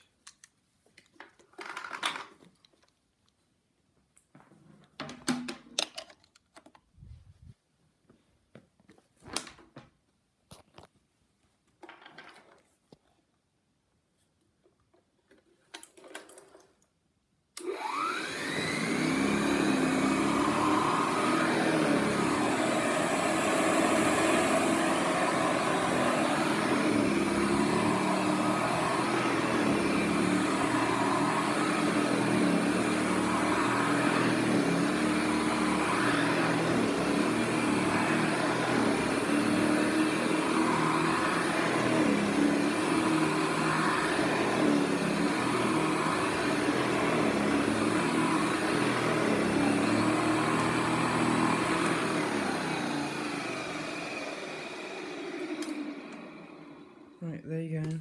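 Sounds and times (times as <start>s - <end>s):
vacuum cleaner motor whine: 17.6s - 57.2s.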